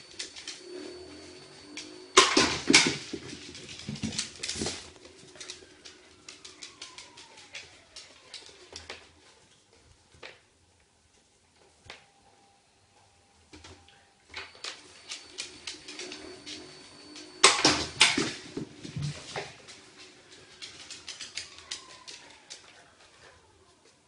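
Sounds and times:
dog claws clicking on floor: 2.2s - 9.2s, 14.4s - 22.9s.

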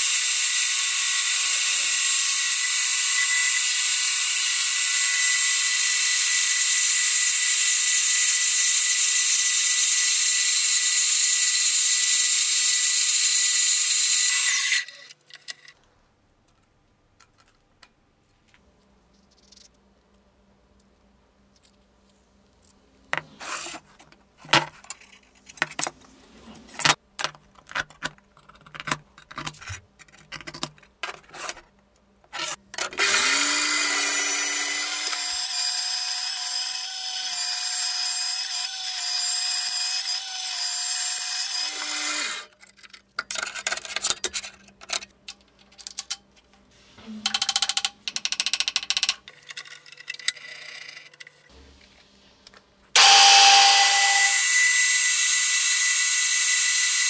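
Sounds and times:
band saw cutting steel: 0.0s - 15.1s, 32.4s - 42.5s, 53.0s - 57.0s
metal parts knocking: 47.3s - 51.4s
milling machine noise: 53.0s - 57.0s.

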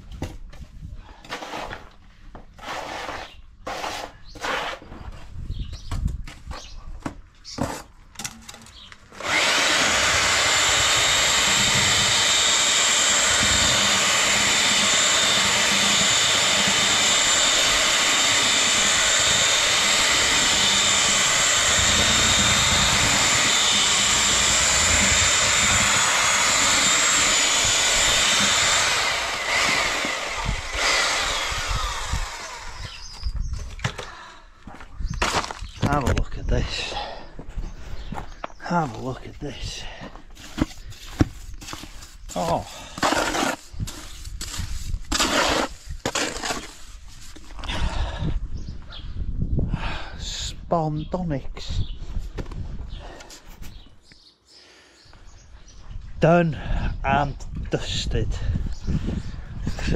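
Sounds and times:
knocks and scrapes: 0.0s - 8.9s, 40.2s - 47.6s
power drill mixing mortar: 1.1s - 5.0s, 8.2s - 34.3s, 38.9s - 48.3s.

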